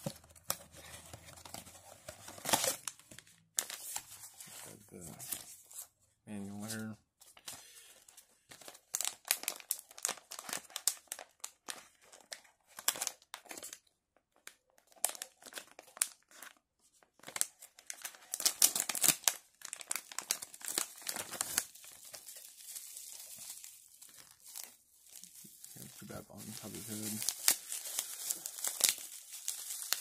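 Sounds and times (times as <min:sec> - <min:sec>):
bubble wrap rustling: 0:06.6 - 0:13.8, 0:14.7 - 0:30.0
foil pouch crinkling: 0:17.2 - 0:30.0.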